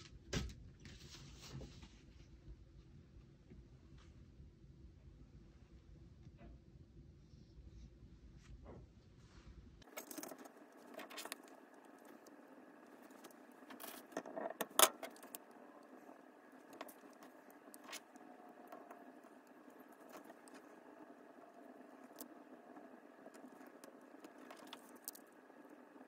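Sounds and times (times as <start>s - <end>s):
paper rustling and crinkling: 9.8s - 20.8s.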